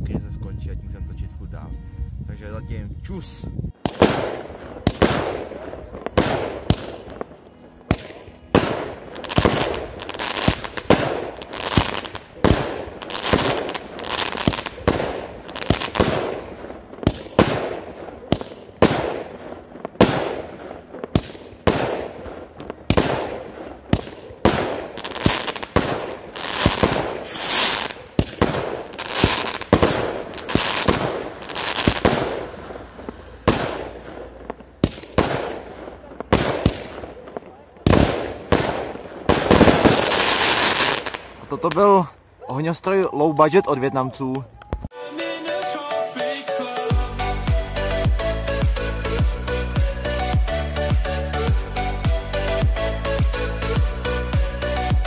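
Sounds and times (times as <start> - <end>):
firework shots launching and bursting: 3.8 - 41.7.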